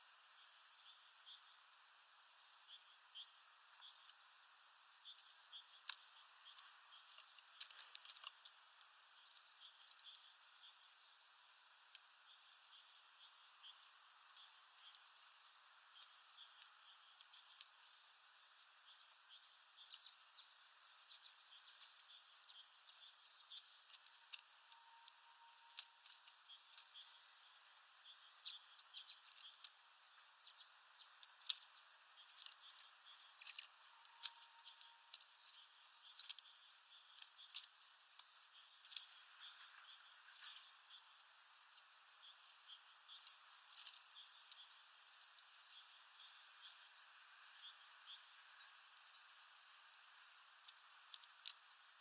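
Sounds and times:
birds twittering faintly: 0:00.0 - 0:52.0
sharp clicks: 0:30.5 - 0:39.4.

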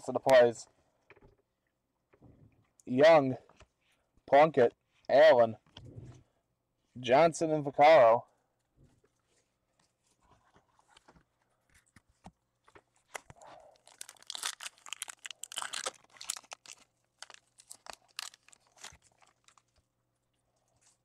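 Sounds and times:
foil wrapper crinkling and tearing: 0:13.0 - 0:19.8.

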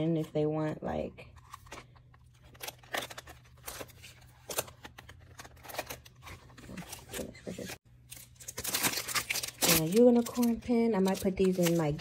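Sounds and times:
plastic packaging clicks and rustles: 0:08.1 - 0:12.0.

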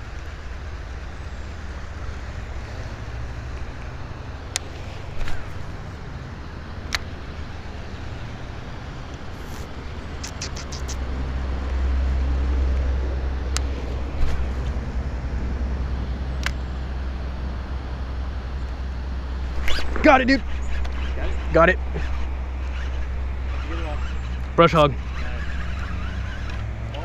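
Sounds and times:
low outdoor rumble: 0:00.0 - 0:27.0
sharp clicks: 0:10.2 - 0:11.0, 0:16.4 - 0:16.6.

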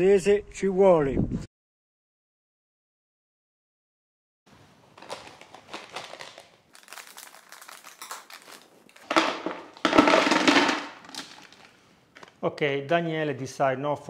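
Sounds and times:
plastic bags crinkling: 0:04.8 - 0:12.4
dried root pieces rattling into bucket: 0:05.0 - 0:11.7.

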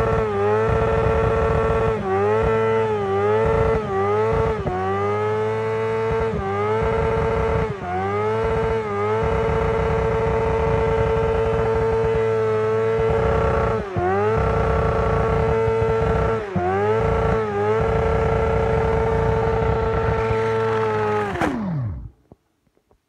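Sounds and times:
motorcycle engine at high revs: 0:00.0 - 0:22.2
rear tyre spinning: 0:00.0 - 0:22.3.

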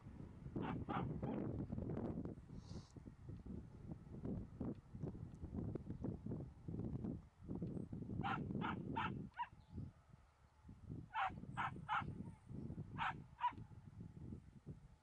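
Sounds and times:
dog barking: 0:00.6 - 0:01.4, 0:08.2 - 0:09.5, 0:11.1 - 0:12.1, 0:13.0 - 0:13.6.

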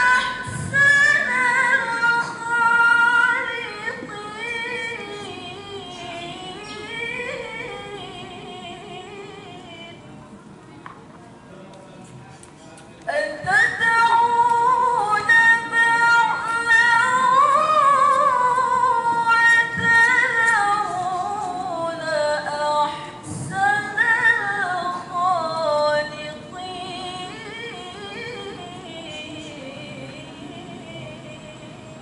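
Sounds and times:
woman chanting into microphone: 0:00.0 - 0:10.0.

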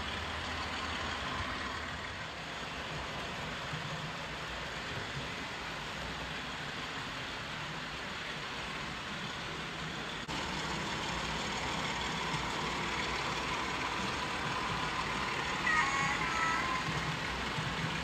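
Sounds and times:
model train rumbling on track: 0:00.0 - 0:18.0
model train horn: 0:15.6 - 0:17.0.

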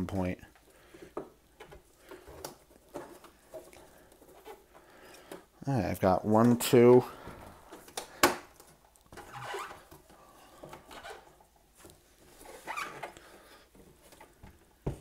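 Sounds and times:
faint rubbing and scraping: 0:00.0 - 0:15.0
squeaky scrapes: 0:09.2 - 0:09.9, 0:10.8 - 0:11.4, 0:12.3 - 0:13.2.

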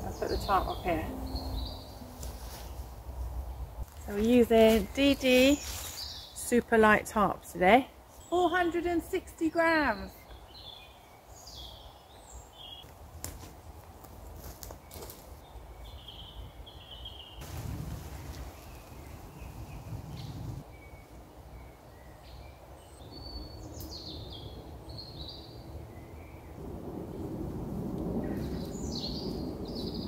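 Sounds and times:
small birds chirping: 0:00.0 - 0:02.9, 0:03.5 - 0:12.9, 0:14.8 - 0:26.3
low wind rumble: 0:00.0 - 0:09.4, 0:10.0 - 0:30.0
rustling: 0:01.8 - 0:03.2, 0:03.8 - 0:06.3, 0:17.4 - 0:20.6.

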